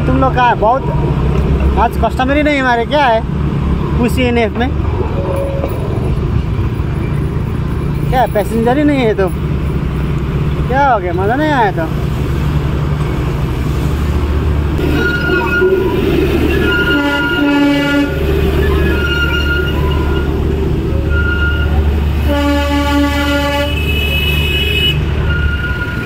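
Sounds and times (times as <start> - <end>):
motorcycle engine drone: 0.0 - 26.0
vehicle horn toots: 14.8 - 20.4, 21.1 - 26.0.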